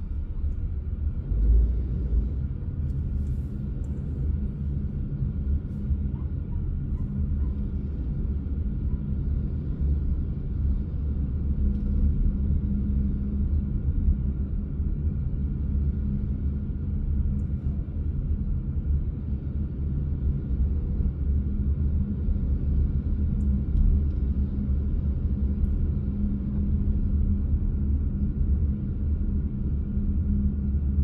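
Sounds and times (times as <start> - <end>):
car driving slowly: 0.0 - 21.5.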